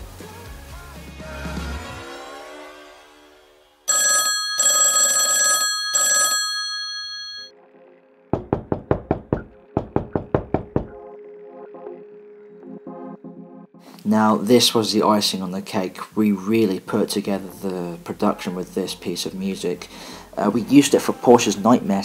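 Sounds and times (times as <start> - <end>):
old telephone bell ringing: 3.9 - 7.5
knocking raps: 8.4 - 11.0.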